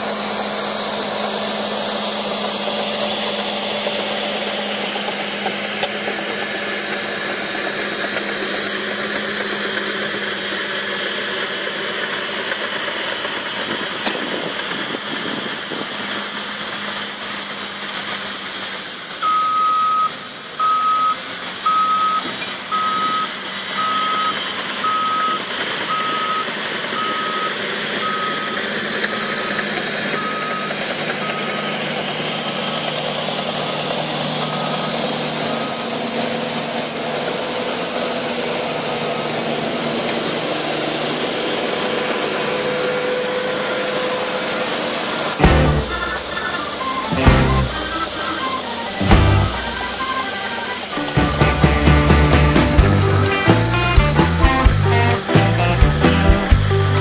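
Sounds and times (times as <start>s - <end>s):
diesel engines of heavy machines: 0.0s - 57.0s
reversing alarm beeping: 19.2s - 32.2s, 45.4s - 51.4s.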